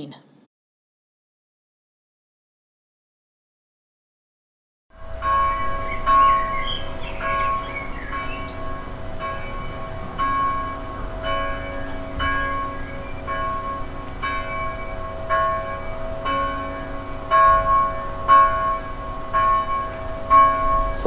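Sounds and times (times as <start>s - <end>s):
church bells pealing: 4.9s - 21.0s.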